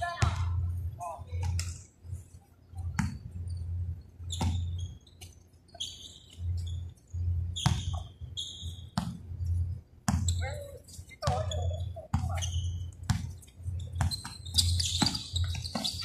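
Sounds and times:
basketball bouncing on court: 0.1s - 0.6s, 2.9s - 3.3s, 4.2s - 4.8s, 7.5s - 8.1s, 8.7s - 9.3s, 10.0s - 10.6s, 11.2s - 16.0s
sneaker squeaks: 2.8s - 16.0s.

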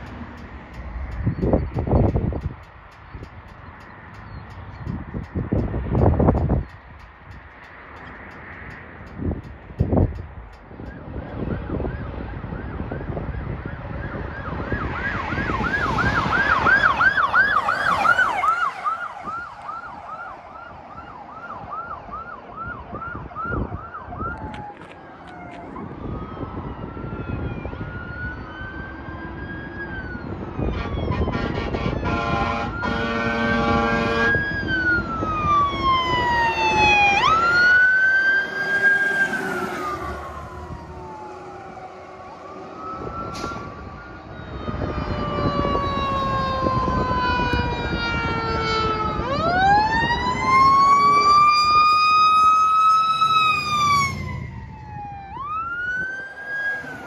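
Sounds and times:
engine and road rumble: 0.0s - 57.0s
fire truck sirens wailing: 9.1s - 57.0s
horn blast: 30.8s - 34.4s.

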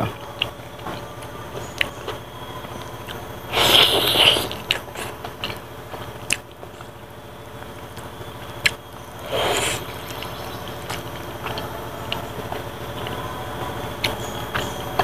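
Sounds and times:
biting and chewing food: 3.0s - 6.5s, 7.9s - 11.7s
mouth clicks: 3.1s - 5.6s, 8.6s - 11.7s.

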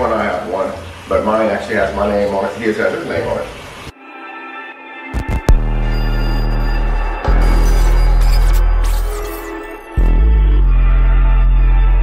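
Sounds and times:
loud music with deep bass: 5.2s - 12.0s.

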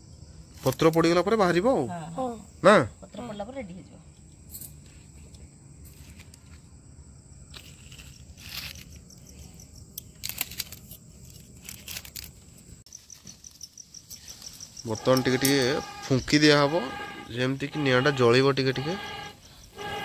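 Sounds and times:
crickets trilling: 0.0s - 20.0s
rustles and clicks: 7.5s - 9.4s.

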